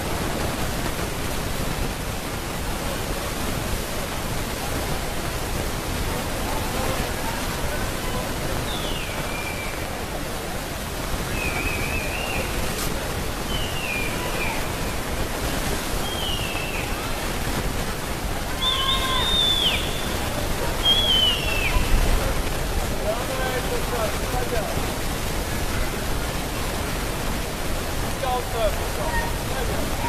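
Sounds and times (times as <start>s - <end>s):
outdoor rushing hiss: 0.0s - 30.0s
high falling calls: 13.4s - 15.2s, 16.0s - 17.3s, 18.5s - 22.1s.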